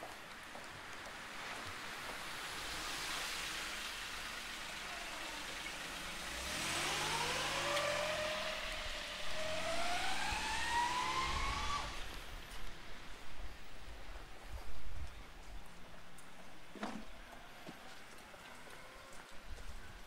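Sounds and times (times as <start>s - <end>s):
street hum: 0.0s - 20.0s
vehicle motor whine accelerating: 5.6s - 12.4s.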